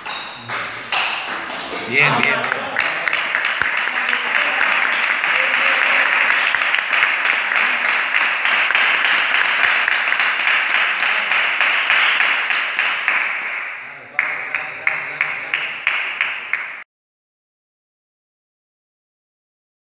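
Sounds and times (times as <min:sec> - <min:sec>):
applause: 0:01.6 - 0:16.8.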